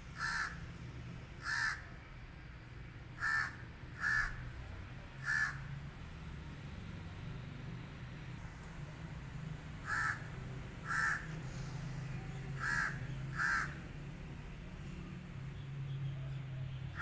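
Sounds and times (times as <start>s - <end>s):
crow cawing: 0.2s - 0.6s, 1.4s - 1.9s, 3.2s - 4.4s, 5.2s - 5.7s, 9.8s - 11.4s, 12.6s - 13.8s.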